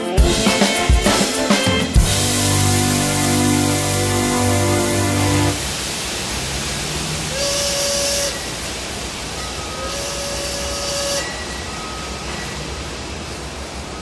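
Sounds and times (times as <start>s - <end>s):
rushing noise wash: 0.0s - 10.2s
bright hiss with held tone: 0.0s - 14.0s.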